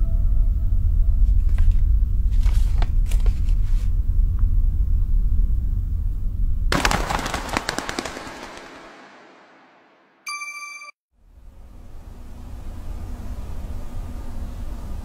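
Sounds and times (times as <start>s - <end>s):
scattered crackles: 6.7s - 10.2s.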